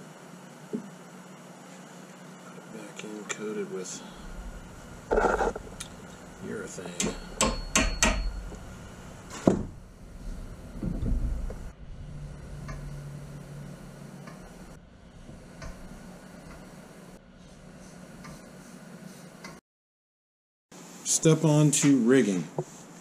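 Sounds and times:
hammer tapping metal pin: 0:07.0 - 0:08.4.

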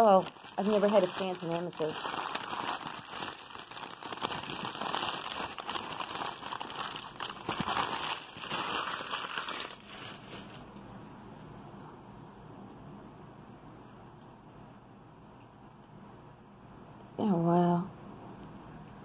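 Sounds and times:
packing paper crinkling: 0:00.0 - 0:10.7.

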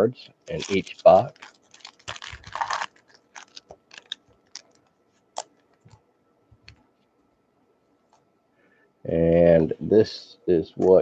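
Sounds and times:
card pack wrappers crinkling: 0:00.5 - 0:05.9.

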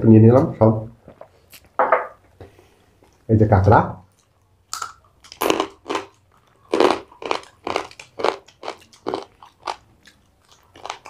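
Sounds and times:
person crunching crab shell: 0:04.2 - 0:11.0.

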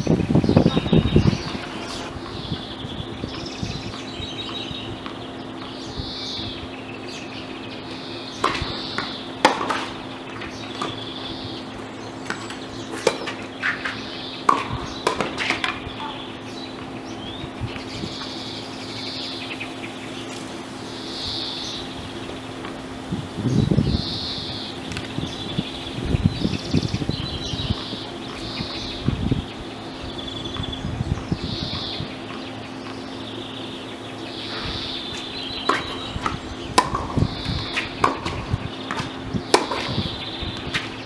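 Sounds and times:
birds chirping: 0:00.0 - 0:41.0
steady low hum: 0:00.0 - 0:41.0
tennis ball hit by rackets: 0:08.4 - 0:11.0, 0:12.2 - 0:16.1, 0:35.6 - 0:40.0
tennis ball bouncing on court: 0:08.4 - 0:11.1, 0:12.2 - 0:16.1, 0:35.2 - 0:40.9.

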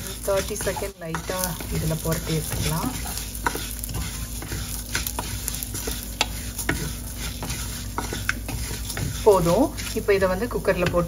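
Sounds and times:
food sizzling in a pan: 0:00.0 - 0:11.0
spatula scraping a pan: 0:00.0 - 0:11.0.

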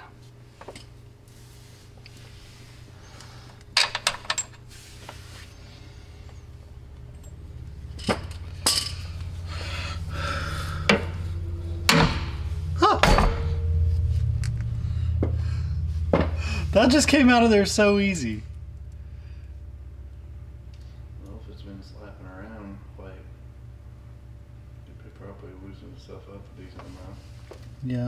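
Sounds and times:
low steady hum: 0:00.0 - 0:28.0
metal clinks: 0:07.0 - 0:09.3.

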